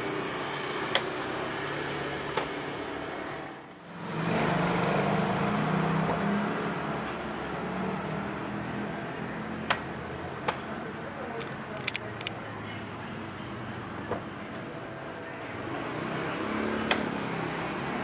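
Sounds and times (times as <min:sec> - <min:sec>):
vehicle engine humming: 0:00.0 - 0:18.0.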